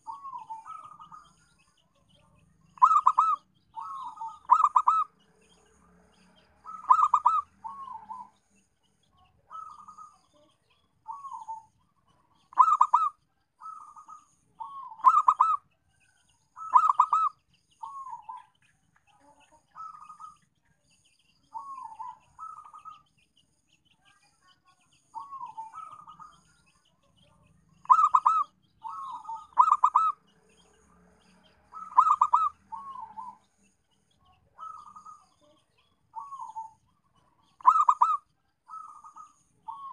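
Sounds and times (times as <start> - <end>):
dove cooing: 0.0 - 1.4, 2.8 - 5.2, 6.6 - 8.4, 9.5 - 10.4, 11.0 - 11.7, 12.3 - 15.6, 16.6 - 18.5, 19.8 - 20.4, 21.5 - 23.0, 25.2 - 26.4, 27.8 - 30.2, 31.7 - 33.4, 34.6 - 35.5, 36.2 - 36.8, 37.5 - 39.9.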